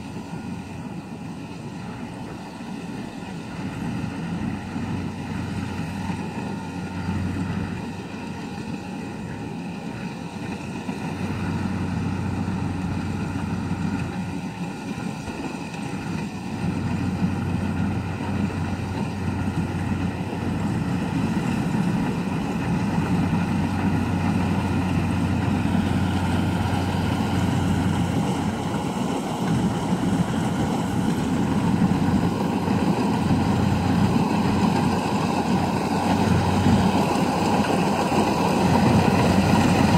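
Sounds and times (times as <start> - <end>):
combine harvester running: 0.0 - 39.9.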